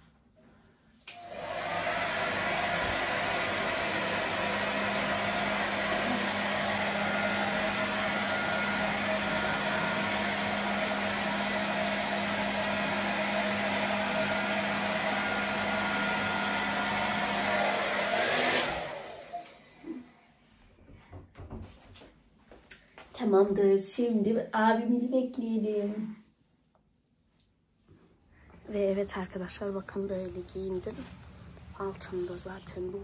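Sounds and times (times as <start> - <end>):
hair dryer blowing: 1.0 - 20.2.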